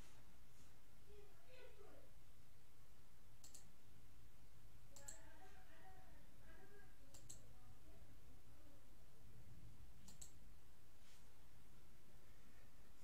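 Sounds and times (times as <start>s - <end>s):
sharp double clicks: 3.4s - 3.7s.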